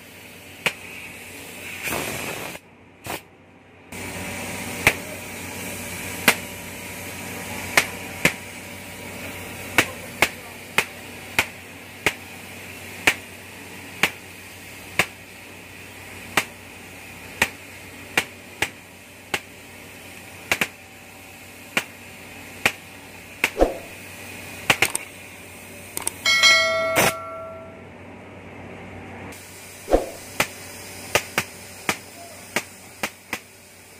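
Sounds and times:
cutting torch hissing: 0.0 - 3.2, 4.0 - 26.2, 29.3 - 33.9
short metallic ringing: 26.2 - 27.9.

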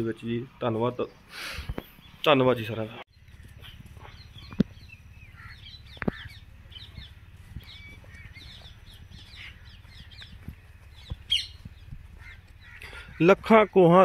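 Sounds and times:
wild birds chirping: 0.0 - 14.0
low steady rumble: 3.1 - 13.2.

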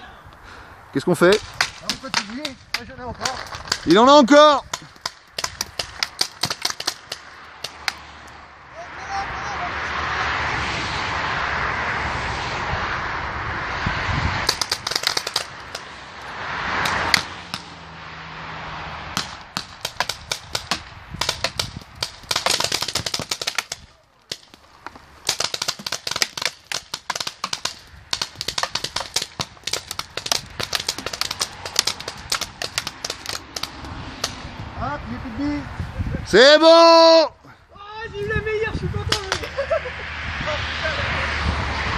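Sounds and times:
paintball markers popping: 4.7 - 8.0, 14.4 - 15.9, 19.2 - 34.4
loud rushing noise: 6.9 - 23.9, 27.8 - 36.6, 38.2 - 41.9.

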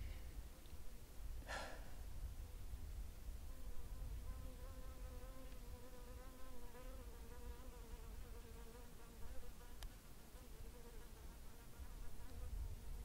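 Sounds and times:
insect buzzing: 3.4 - 13.0.

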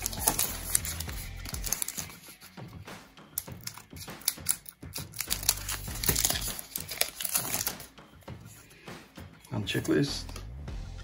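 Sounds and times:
card pack crinkling and rustling: 0.0 - 2.7, 3.4 - 7.9.

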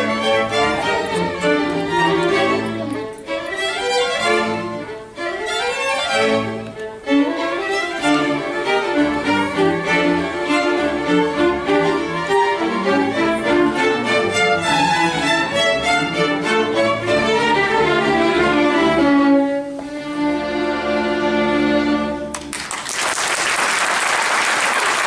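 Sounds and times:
string orchestra playing: 0.0 - 22.6
audience applause: 22.3 - 25.0.

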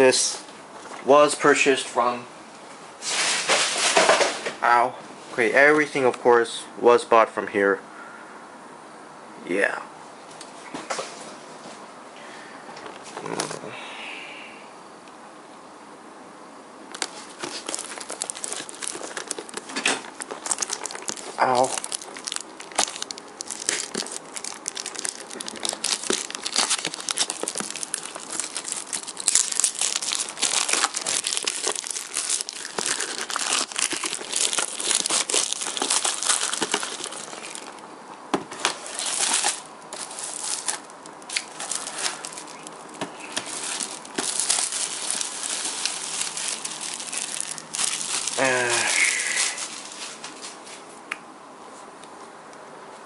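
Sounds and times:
plastic wrap crinkling and tearing: 16.9 - 37.8, 38.6 - 50.5.

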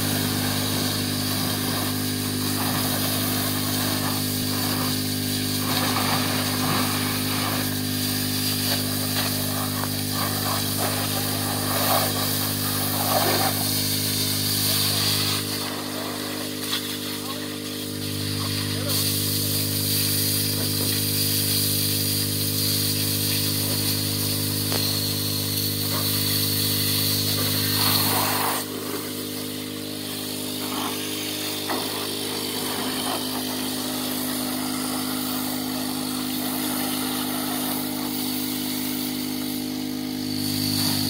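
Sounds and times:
garden hose spraying: 0.0 - 41.0
small engine running: 0.0 - 41.0.

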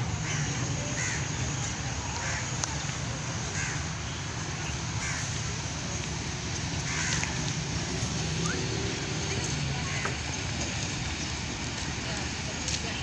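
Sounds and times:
crows cawing: 0.2 - 1.2, 3.6 - 3.8, 5.0 - 5.3, 6.8 - 7.4.

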